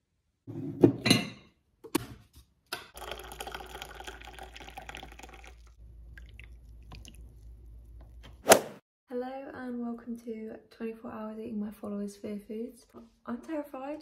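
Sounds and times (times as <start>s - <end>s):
tea pouring into a mug: 3.0s - 7.5s.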